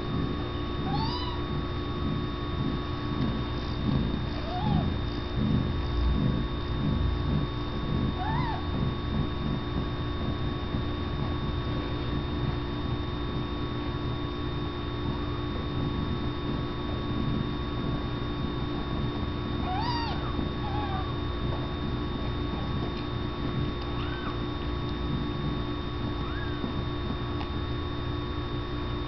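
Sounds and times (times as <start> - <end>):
electrical hum: 0.0 - 29.0
kittens mewing: 0.8 - 1.6, 4.3 - 5.0, 8.2 - 8.7, 19.6 - 21.2, 23.8 - 24.5, 26.1 - 26.7.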